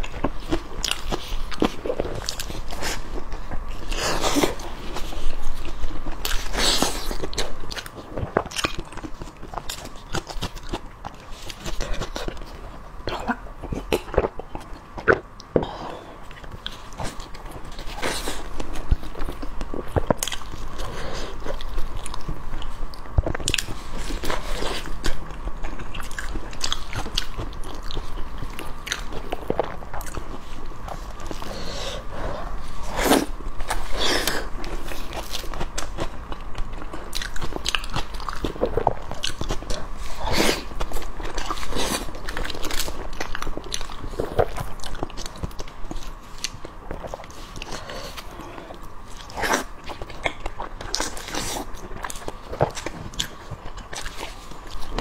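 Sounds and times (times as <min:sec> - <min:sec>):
biting and crunchy chewing: 0:00.0 - 0:55.0.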